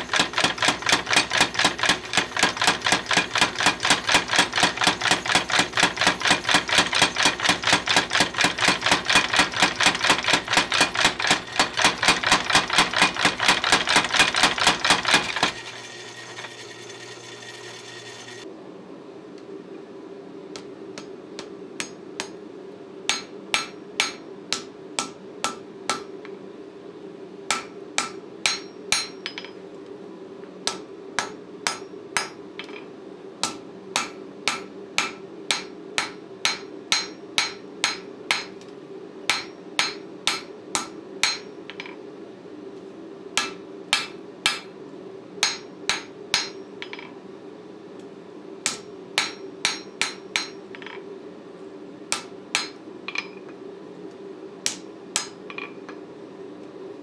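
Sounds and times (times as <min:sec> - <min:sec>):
hammer striking metal on anvil: 0:23.1 - 0:26.1, 0:27.5 - 0:29.6, 0:30.7 - 0:32.8, 0:33.4 - 0:38.6, 0:39.3 - 0:41.9, 0:43.4 - 0:44.7, 0:45.4 - 0:47.1, 0:48.6 - 0:51.0, 0:52.1 - 0:53.4, 0:54.6 - 0:55.8.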